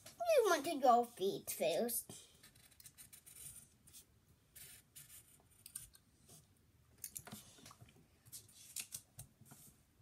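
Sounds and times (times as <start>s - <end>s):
pencil scratching on paper: 2.4s - 5.7s.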